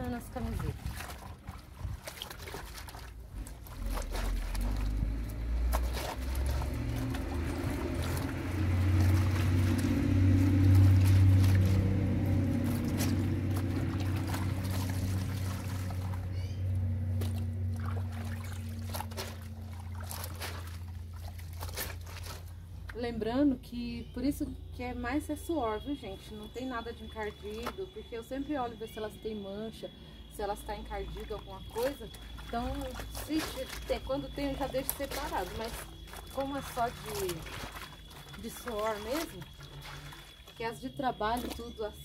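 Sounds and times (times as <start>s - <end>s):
small splashes and knocks: 0.0s - 23.0s, 27.1s - 27.9s, 31.0s - 42.0s
water sloshing and trickling: 0.0s - 42.0s
low rumble: 3.4s - 26.0s.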